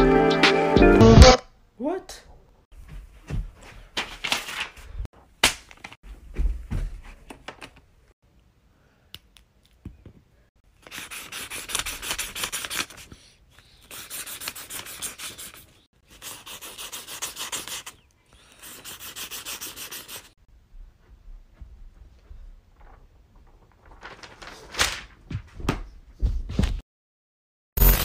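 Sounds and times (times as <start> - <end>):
marker scribbling on paper: 10.8 - 20.4.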